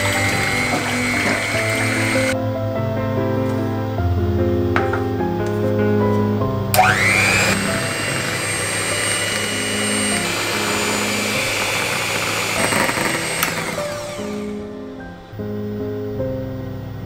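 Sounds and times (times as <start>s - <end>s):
electric hand mixer whine: 0.0s - 2.4s, 6.8s - 14.8s
soft background music: 0.0s - 17.0s.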